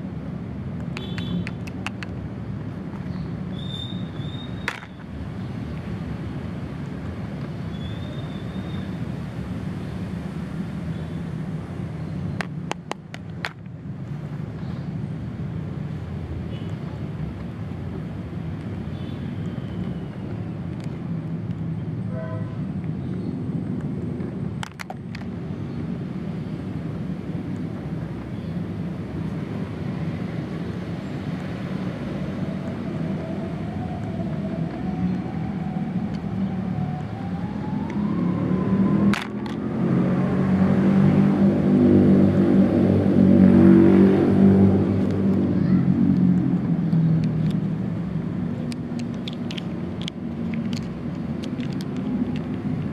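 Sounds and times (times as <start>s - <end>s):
plastic toys clicking: 0.8s - 2.2s, 4.7s - 4.9s, 47.2s - 47.6s, 48.6s - 52.9s.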